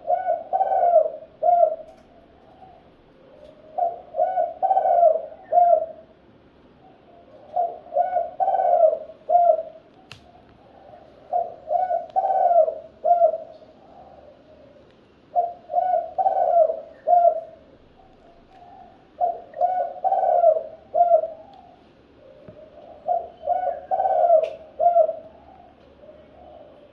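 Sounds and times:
dove cooing: 0.0s - 6.2s, 6.8s - 26.9s.

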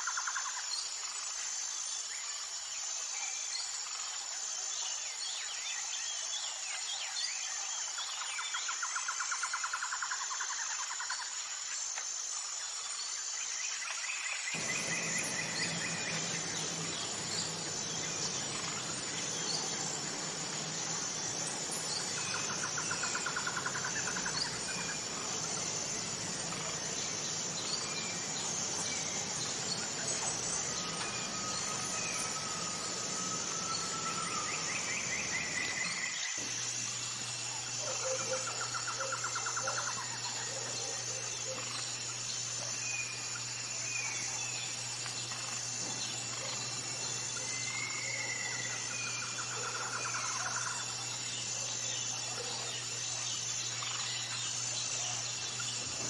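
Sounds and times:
insects chorus: 0.0s - 56.0s
high pulsing insect note: 14.5s - 56.0s
low steady hum: 14.6s - 39.5s.

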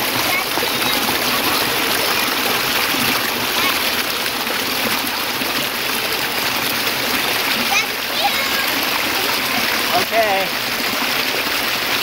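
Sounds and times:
creek cascading over rocks: 0.0s - 12.0s.

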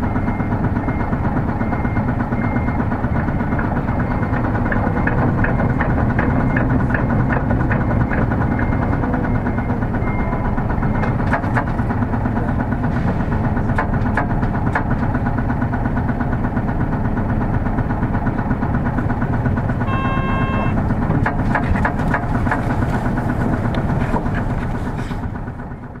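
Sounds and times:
bus diesel engine running: 0.0s - 26.0s
short electronic beep: 19.8s - 20.8s.

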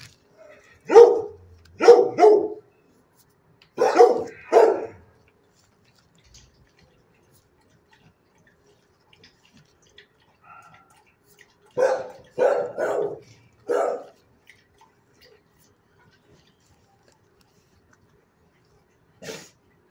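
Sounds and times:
dog barking: 0.8s - 2.7s, 3.8s - 5.0s, 11.7s - 14.2s.

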